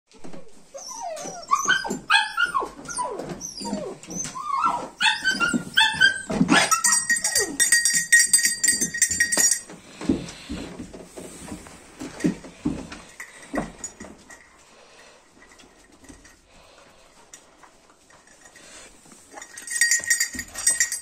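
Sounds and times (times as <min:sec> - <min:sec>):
puppies whining and yelping: 0:00.2 - 0:07.7
collar bell ringing rapidly: 0:06.6 - 0:09.7, 0:19.4 - 0:21.0.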